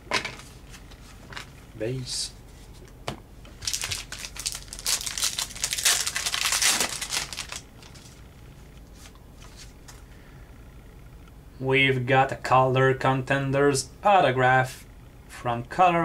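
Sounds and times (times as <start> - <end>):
foil wrapper tearing and crinkling: 3.6 - 8.1.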